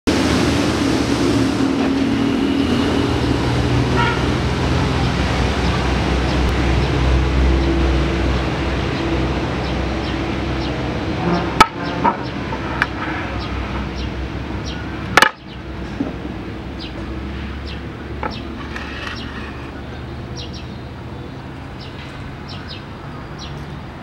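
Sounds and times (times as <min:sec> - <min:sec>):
road traffic rumble: 0:00.1 - 0:24.0.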